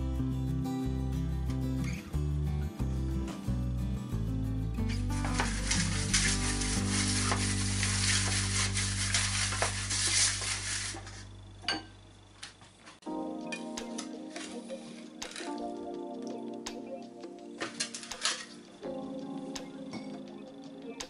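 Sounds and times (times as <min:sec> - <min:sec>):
pastry brush scraping metal pan: 0:05.2 - 0:11.3.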